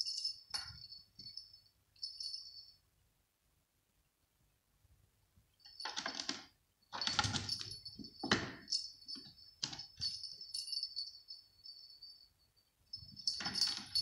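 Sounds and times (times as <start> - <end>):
small jingle bell jingling: 0.0 - 2.8, 5.6 - 14.0.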